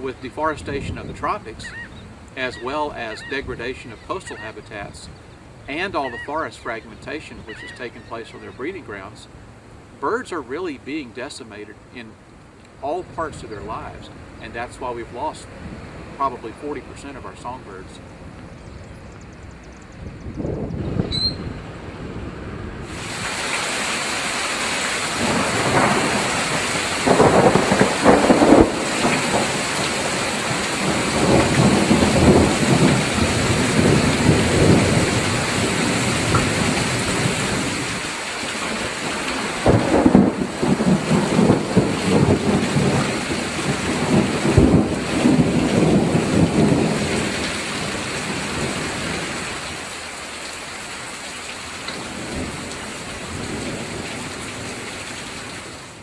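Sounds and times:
heavy rain: 0.0s - 18.5s, 20.4s - 56.0s
rolling thunder: 25.1s - 37.8s, 38.8s - 49.4s.

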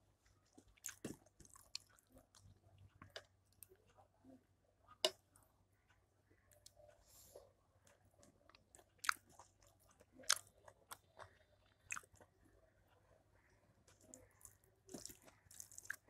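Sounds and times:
chewing: 0.5s - 3.8s, 7.9s - 12.4s, 13.8s - 16.0s.

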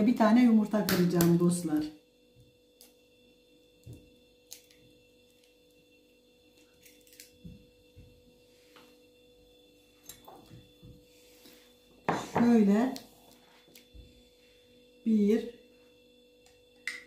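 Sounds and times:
faint hum: 0.0s - 17.0s.

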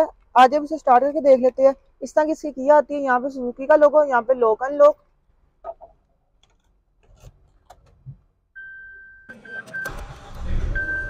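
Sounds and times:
car engine cranking and starting: 9.3s - 11.0s.

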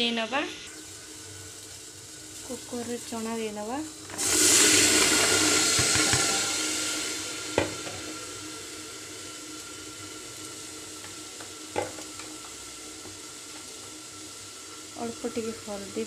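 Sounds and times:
chickpeas pouring into metal pot: 3.9s - 6.8s.

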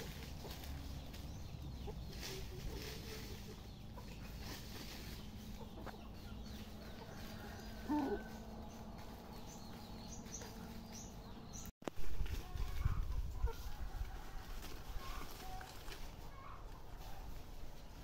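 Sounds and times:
rooster clucking: 1.6s - 9.2s.

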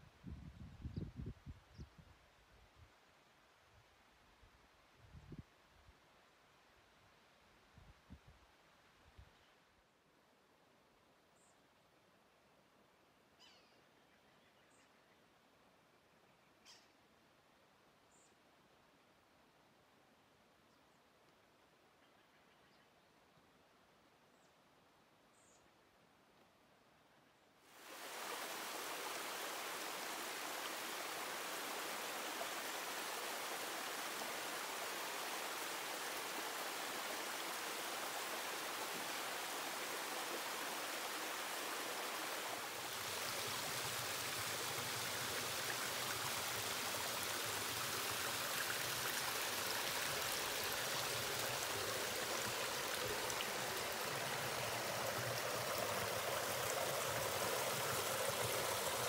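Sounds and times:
river water rushing: 27.8s - 59.0s.

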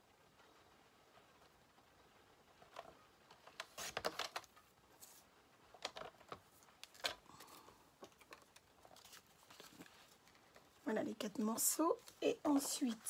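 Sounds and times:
paper rustling: 2.6s - 10.8s.

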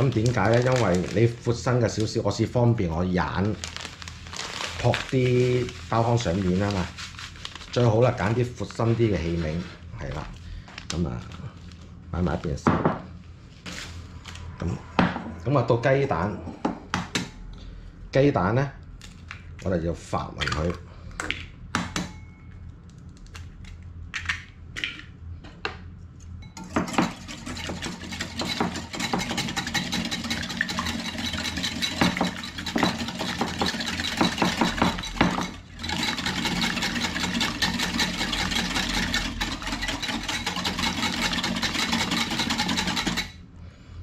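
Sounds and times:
whisk clattering against bowl: 26.5s - 43.4s.

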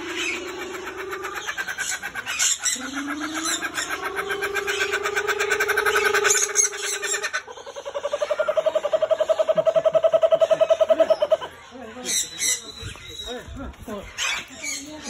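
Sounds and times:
kookaburra laughing call: 0.0s - 11.6s.

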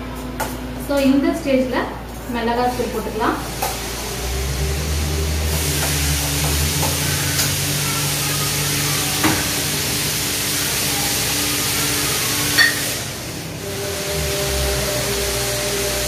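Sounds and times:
food sizzling in a frying pan: 5.6s - 13.1s.

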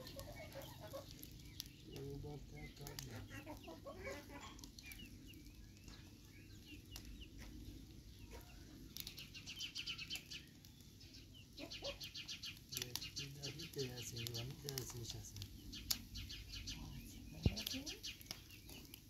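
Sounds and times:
chickens clucking: 0.0s - 6.2s, 8.1s - 8.7s, 11.3s - 19.0s
wood fire crackling: 0.0s - 19.0s.

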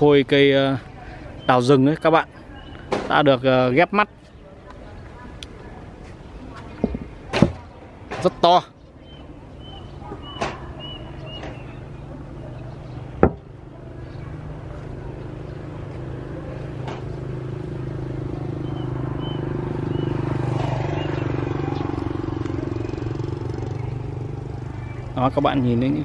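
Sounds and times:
passing vehicle engine drone: 10.7s - 26.0s.

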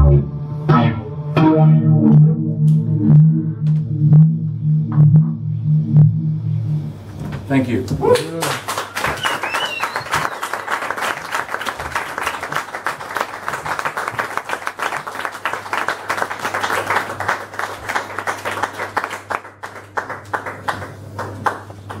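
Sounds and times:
sound system hum: 0.0s - 12.0s
audience applauding: 8.0s - 22.0s.

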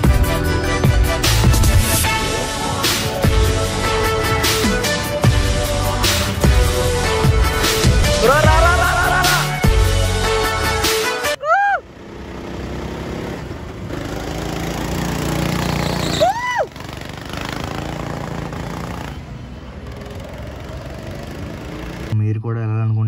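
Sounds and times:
go-kart engines droning: 0.0s - 22.2s
short high squeals: 15.4s - 16.7s.

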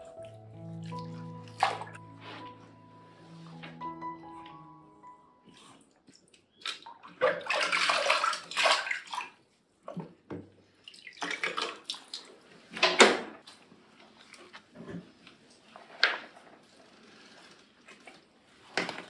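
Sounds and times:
water splashing in a plastic tub: 0.8s - 2.0s, 6.1s - 16.6s.

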